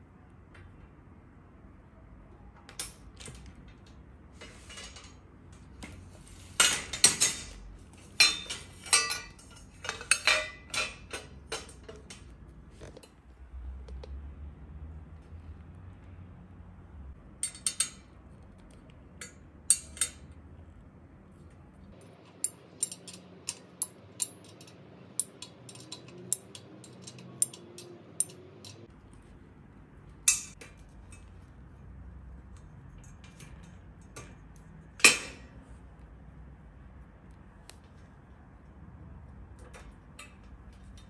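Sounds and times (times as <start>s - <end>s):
hex key metal clicks: 22.0s - 28.9s.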